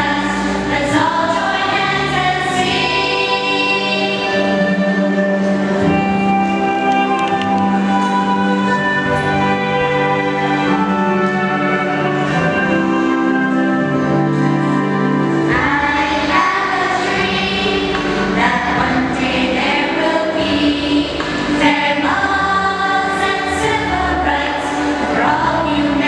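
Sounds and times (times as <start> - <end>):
gospel choir singing: 0.0 - 6.4, 15.4 - 26.0.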